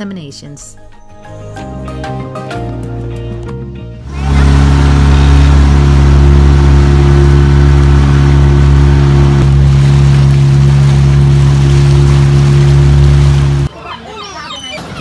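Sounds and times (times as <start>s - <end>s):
outboard motor humming: 4.0s - 13.7s.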